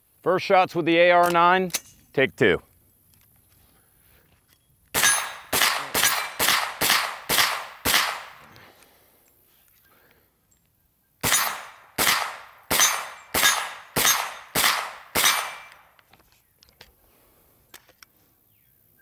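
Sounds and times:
carbine gunshots with echo: 5.0s - 8.6s, 11.2s - 16.0s.

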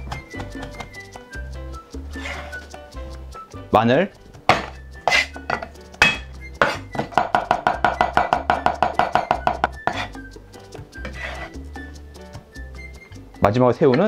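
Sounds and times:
cleaver chopping on wooden board: 4.5s - 10.1s.

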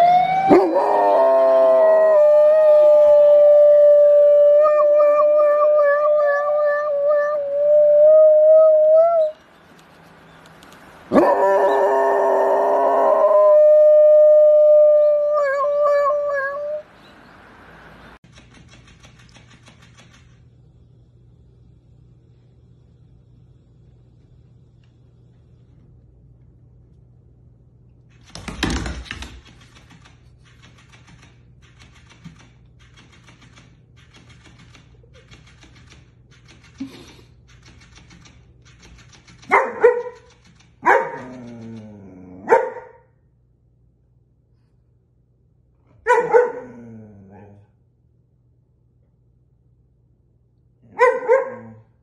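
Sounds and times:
dog howling like a siren: 0.0s - 9.4s, 11.1s - 16.9s.

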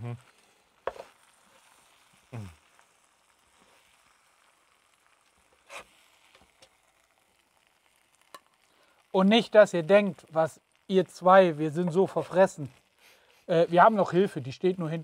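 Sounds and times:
person saying hm: 0.0s - 0.2s, 2.3s - 2.6s
food sizzling in a pot: 0.0s - 15.0s.

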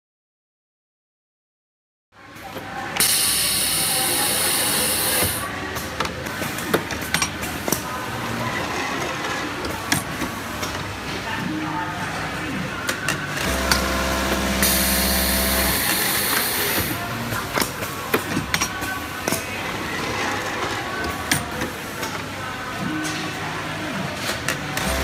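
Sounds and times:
compressed air hissing: 3.0s - 5.5s
pneumatic cylinders clicking: 3.0s - 7.9s, 13.4s - 19.5s
steady machine hum: 13.4s - 17.8s.

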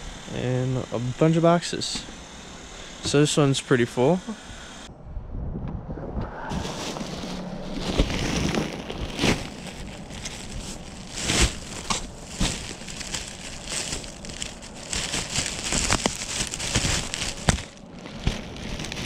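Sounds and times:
crinkling and rustling: 6.5s - 19.0s.

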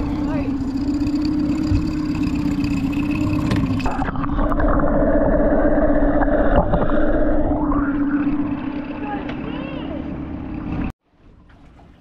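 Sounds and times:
outboard motor idling: 0.0s - 4.2s, 7.3s - 10.9s
muffled underwater motor: 0.0s - 10.9s.

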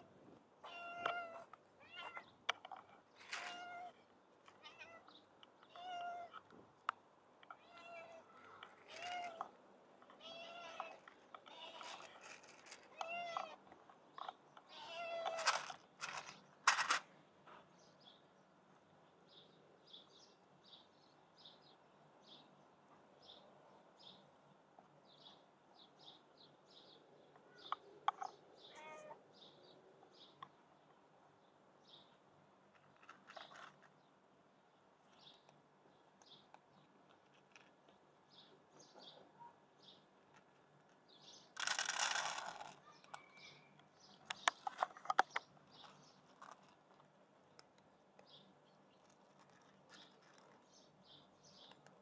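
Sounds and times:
cat meowing: 0.6s - 2.3s, 7.6s - 8.3s, 10.2s - 12.1s, 28.7s - 29.2s.

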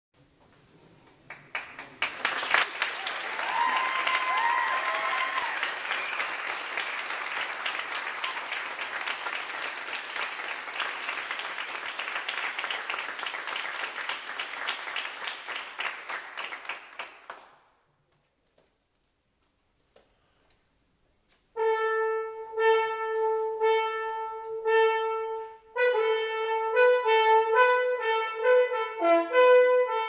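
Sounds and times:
audience applauding: 1.1s - 17.5s.

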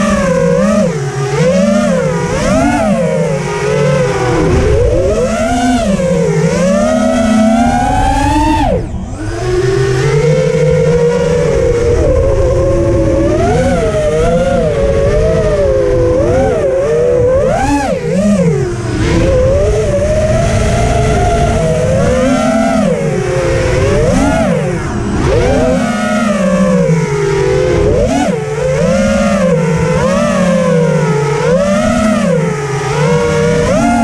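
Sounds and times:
drone motors whining: 0.0s - 34.0s.

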